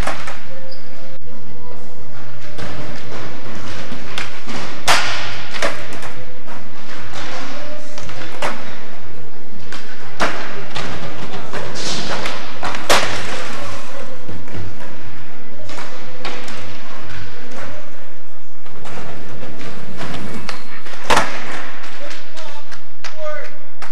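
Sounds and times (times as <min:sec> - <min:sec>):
skateboard popping and landing: 0:02.5 - 0:07.4, 0:09.6 - 0:18.0, 0:18.6 - 0:22.9.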